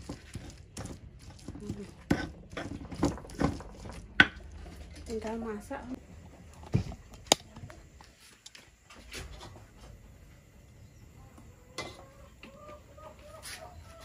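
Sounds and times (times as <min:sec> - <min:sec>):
chicken clucking: 0:11.6 - 0:14.0.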